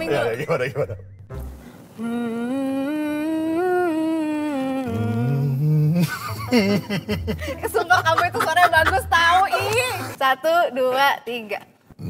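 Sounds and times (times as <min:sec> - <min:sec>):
woman humming: 0:02.0 - 0:06.6
man humming: 0:02.0 - 0:07.4.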